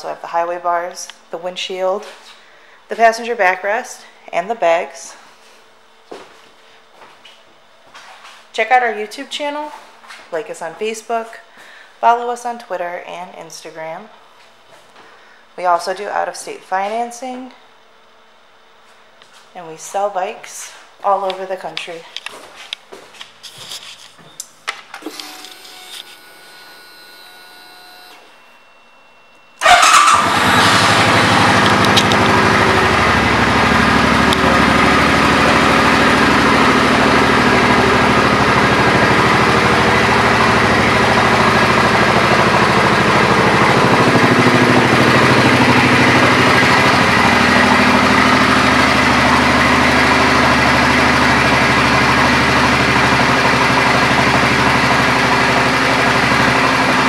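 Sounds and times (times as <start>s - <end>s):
motorcycle engine starting and idling: 24.7s - 28.4s, 29.6s - 57.0s.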